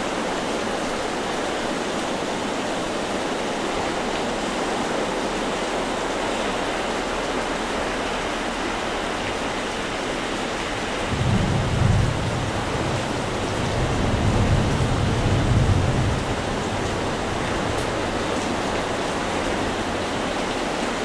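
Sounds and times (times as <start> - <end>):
rain: 0.0 - 21.0
storm surf: 10.1 - 20.0
rolling thunder: 10.8 - 18.7.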